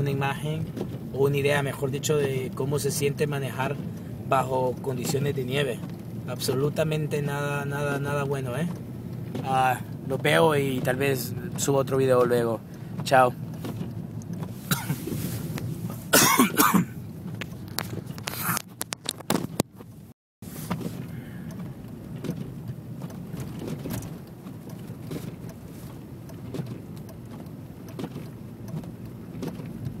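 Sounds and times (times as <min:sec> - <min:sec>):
car interior rumble on snowy road: 0:00.0 - 0:30.0
phone being handled: 0:17.6 - 0:19.7.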